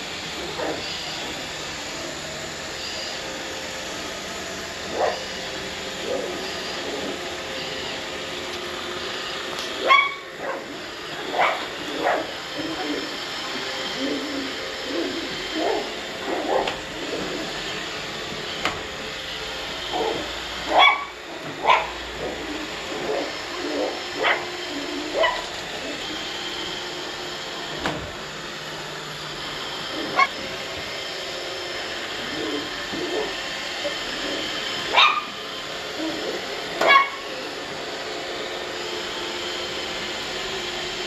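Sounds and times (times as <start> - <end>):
robot vacuum motor: 0.0 - 41.0
puppy yapping and barking: 9.8 - 10.6, 20.0 - 21.9, 23.1 - 24.5, 25.1 - 25.5, 34.9 - 35.3, 36.8 - 37.2.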